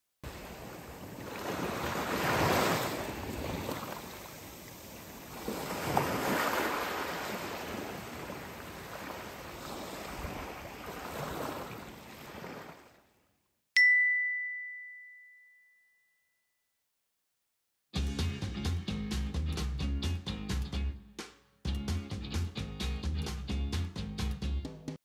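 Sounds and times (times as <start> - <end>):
waves breaking on beach: 0.3 - 13.1.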